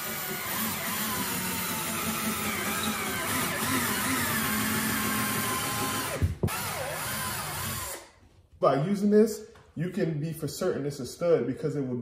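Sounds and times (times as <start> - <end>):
cordless drill drilling: 0.0 - 8.1.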